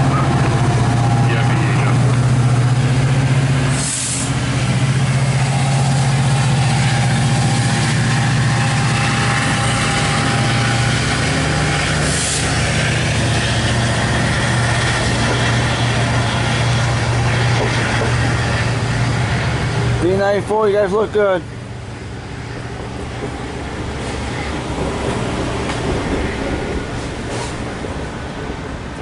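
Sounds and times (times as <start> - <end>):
diesel locomotive engine humming: 0.0 - 29.0
short hisses: 3.7 - 4.4.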